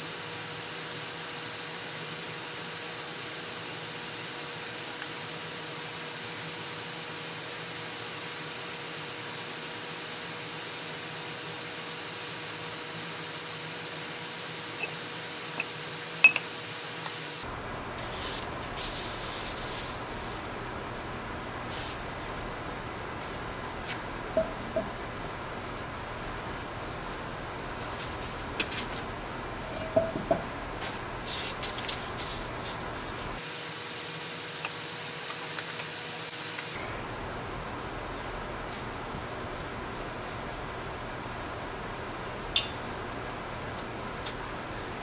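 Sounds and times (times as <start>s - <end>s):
dome scraping on styrofoam: 18.0s - 20.4s.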